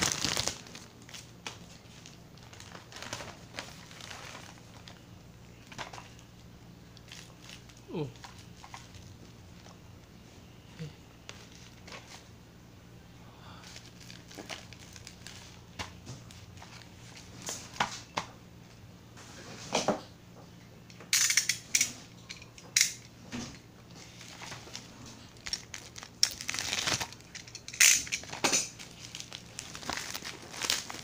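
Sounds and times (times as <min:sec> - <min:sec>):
plastic packaging crinkling: 0:00.0 - 0:09.8, 0:13.6 - 0:17.8, 0:23.9 - 0:31.0.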